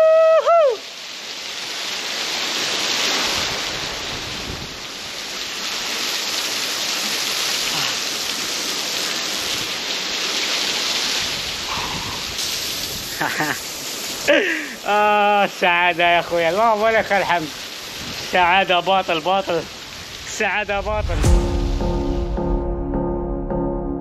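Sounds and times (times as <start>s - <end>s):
water rushing over rocks: 0.0s - 21.2s
loud high held note: 21.1s - 24.0s.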